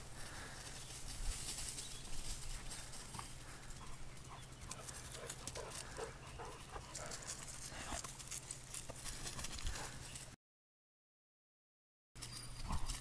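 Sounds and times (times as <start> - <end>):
paws scuffling through grass: 0.0 - 10.4.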